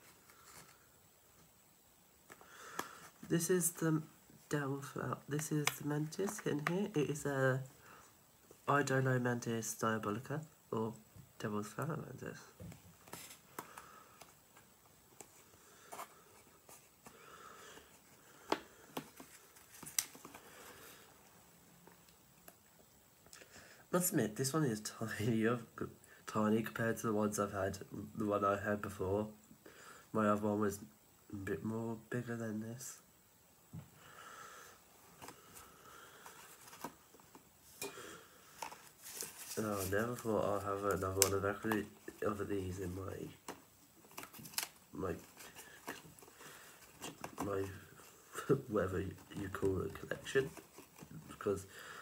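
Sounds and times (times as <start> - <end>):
plastic rustling: 15.2 - 21.1, 35.1 - 51.7.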